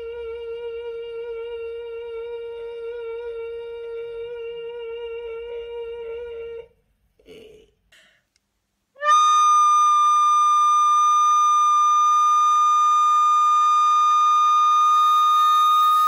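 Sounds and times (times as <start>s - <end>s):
recorder holding a high note: 9.0s - 16.0s.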